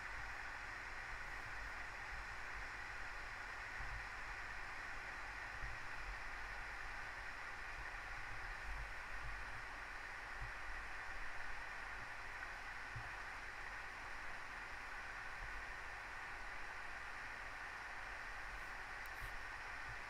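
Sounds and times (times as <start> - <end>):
outdoor background hiss: 0.0 - 20.0.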